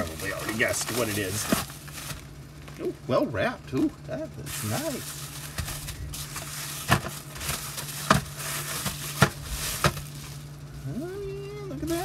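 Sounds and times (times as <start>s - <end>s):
bubble wrap crackles: 0.0s - 2.8s, 4.4s - 10.9s
bubble wrap rustling: 0.0s - 2.8s, 4.4s - 11.2s, 11.8s - 12.0s.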